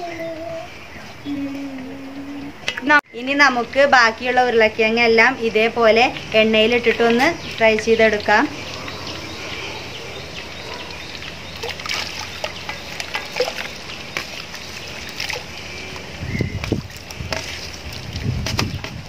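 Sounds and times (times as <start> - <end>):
potatoes sizzling in oil: 3.8 - 11.6.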